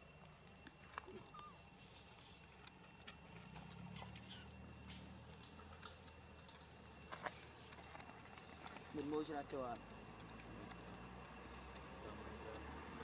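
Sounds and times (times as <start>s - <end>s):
faint steady high tone: 0.0s - 1.7s.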